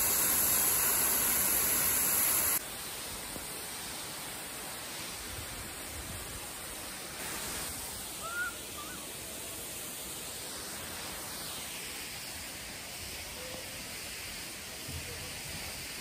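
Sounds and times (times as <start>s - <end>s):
waterfall and rain rushing: 0.0s - 16.0s
bird call: 8.2s - 9.1s.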